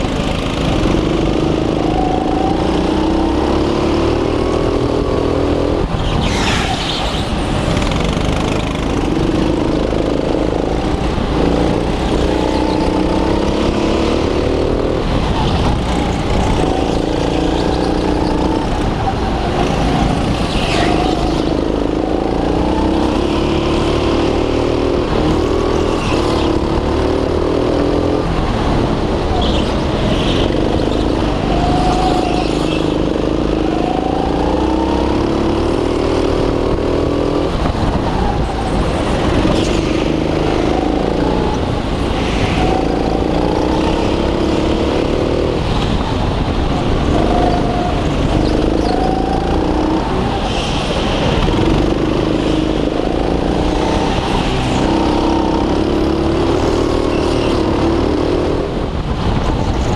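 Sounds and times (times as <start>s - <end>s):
go-kart engine accelerating: 0.0s - 59.9s
high-pitched squeals: 38.0s - 45.2s.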